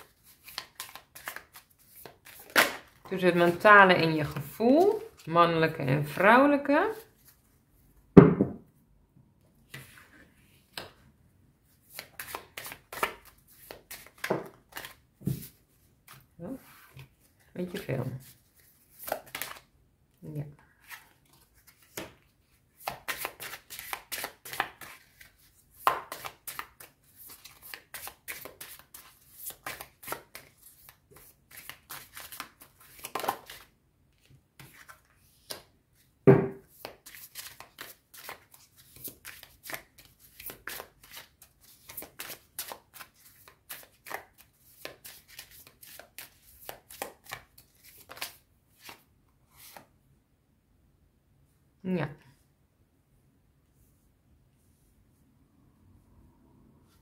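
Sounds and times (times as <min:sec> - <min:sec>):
cards being shuffled: 0:00.1 - 0:03.1, 0:11.9 - 0:16.3, 0:17.7 - 0:19.7, 0:22.8 - 0:35.7, 0:36.8 - 0:49.0.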